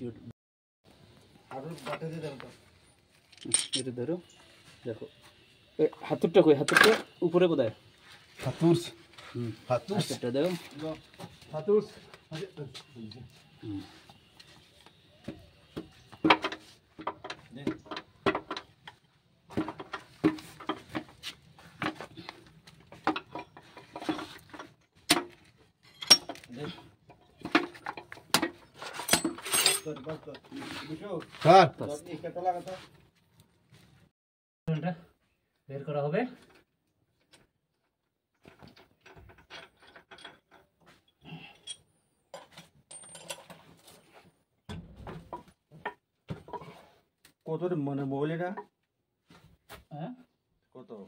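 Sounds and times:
hand tools clinking on metal: 3.2 - 4.0, 25.8 - 30.4, 39.4 - 43.6.

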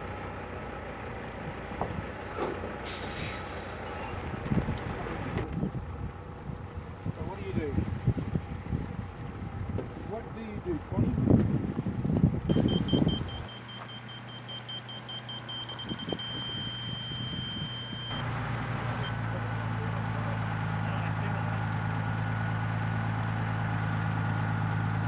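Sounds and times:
rapid high electronic beeping: 12.5 - 18.2.

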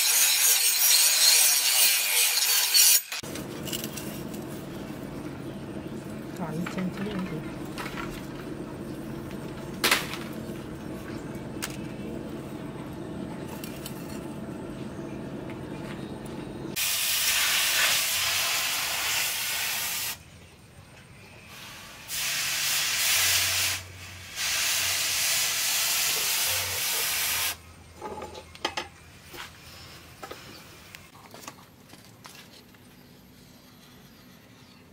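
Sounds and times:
forge low hum: 3.2 - 17.4
hot steel hissing in water: 16.8 - 20.2, 21.5 - 27.6.

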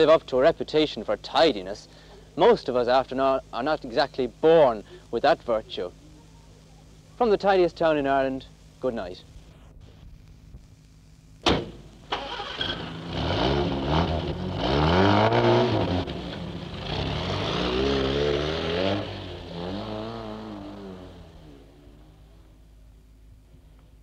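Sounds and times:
car door slamming: 11.4 - 11.9
car engine starting and revving: 12.0 - 22.5.

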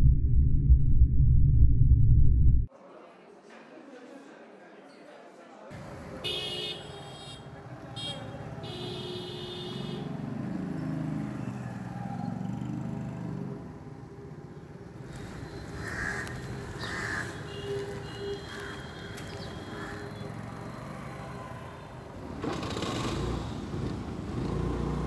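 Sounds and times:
street ambience: 5.6 - 25.0
motorbike engine passing: 10.0 - 14.0, 20.3 - 25.0
crows cawing: 15.7 - 20.3.

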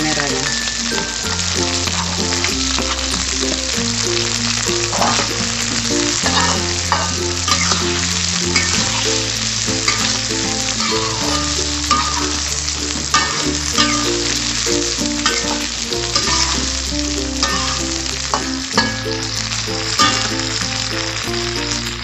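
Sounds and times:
food sizzling in hot oil: 0.0 - 22.0
metal spatula scraping wok: 0.0 - 22.0
quiet background music: 0.0 - 22.0.

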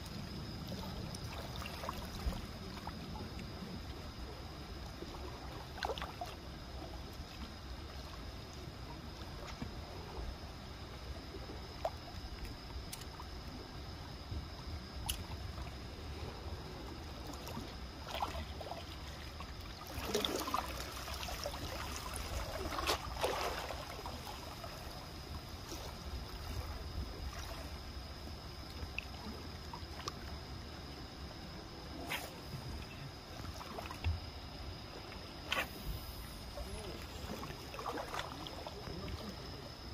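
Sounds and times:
low steady rumble: 0.0 - 39.9
sea water lapping: 0.0 - 39.9
small splashes: 0.6 - 3.0, 5.0 - 6.4, 17.2 - 25.0, 25.6 - 27.8, 36.5 - 39.5.

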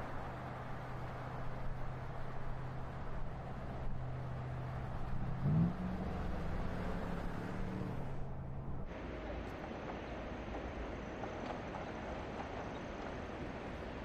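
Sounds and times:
car engine hum: 0.0 - 8.9
tyre and road noise: 0.0 - 14.0.

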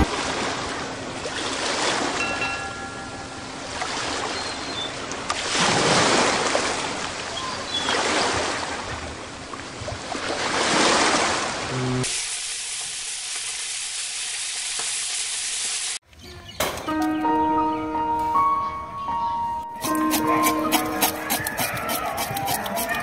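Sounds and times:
ocean waves breaking: 0.0 - 2.7, 3.4 - 11.7.

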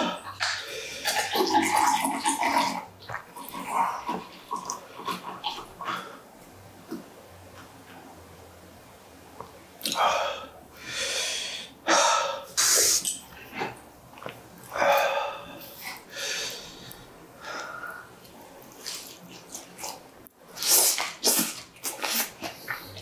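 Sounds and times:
sucking and slurping while eating: 0.0 - 6.3, 12.5 - 23.0
sharp breaths: 10.0 - 13.1.

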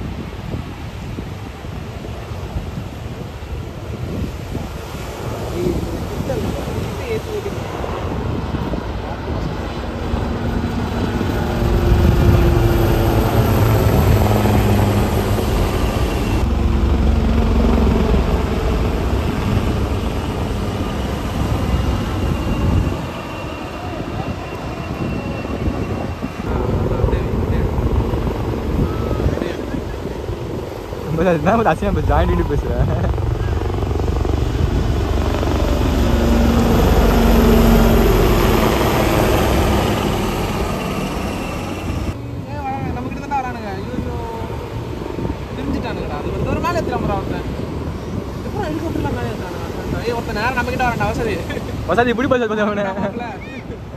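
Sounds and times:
helicopter flying overhead: 0.0 - 53.9.

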